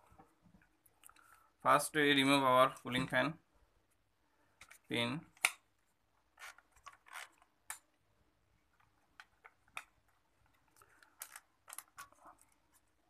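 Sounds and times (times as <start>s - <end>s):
faint plastic clicks and rustles: 3.8s - 8.0s, 8.6s - 13.0s.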